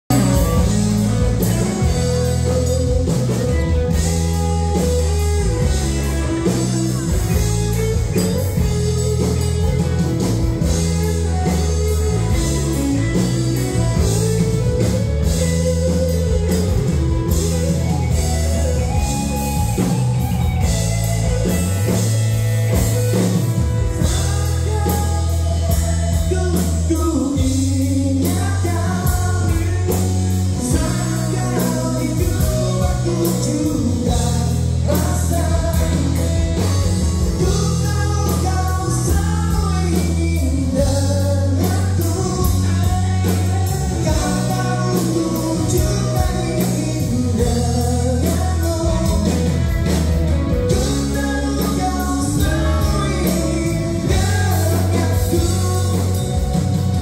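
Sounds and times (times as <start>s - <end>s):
live pop-rock band over speakers: 0.1s - 57.0s
lead vocal singing: 23.9s - 57.0s.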